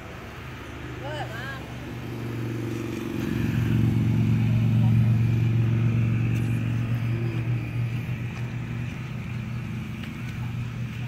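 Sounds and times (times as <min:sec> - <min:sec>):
engine humming steadily: 0:00.0 - 0:11.0.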